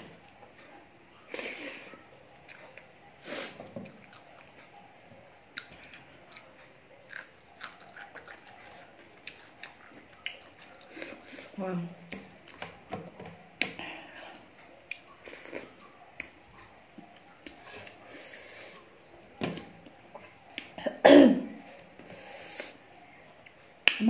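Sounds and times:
person coughing: 20.8 - 21.5.

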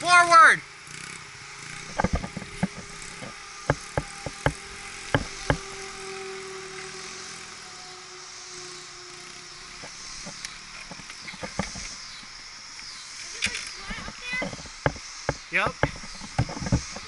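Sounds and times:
faint dirt bike engine: 0.0 - 17.0
sharp clicks or knocks: 1.8 - 5.7.

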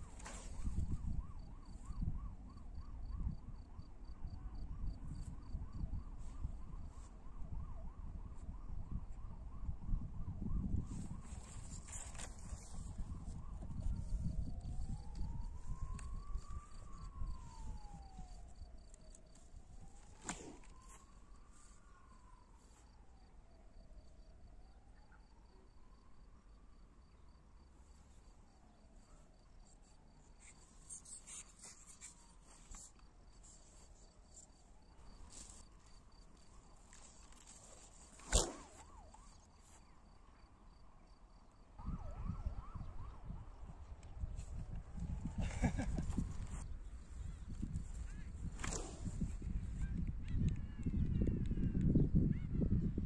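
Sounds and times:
low wind rumble: 0.0 - 23.1, 41.8 - 53.0.

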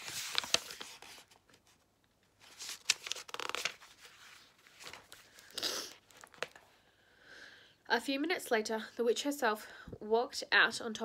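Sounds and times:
book pages rustling: 0.0 - 6.8.

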